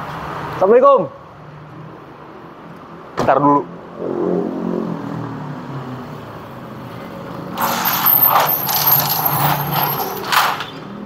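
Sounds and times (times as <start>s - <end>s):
gate closing clank: 7.6s - 10.8s
metal gate rattling: 7.6s - 10.9s.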